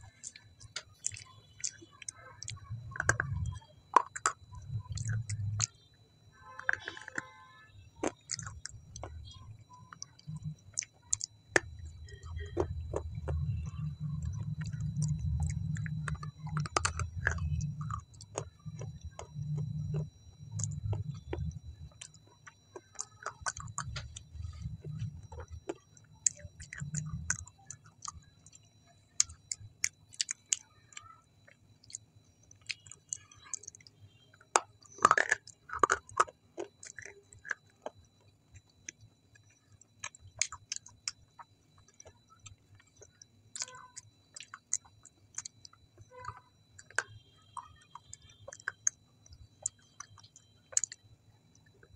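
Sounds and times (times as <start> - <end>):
wet mouth clicks and smacks: 0.0 - 5.8, 8.0 - 30.7, 31.8 - 37.9, 38.6 - 51.7
chewing food: 0.0 - 51.9.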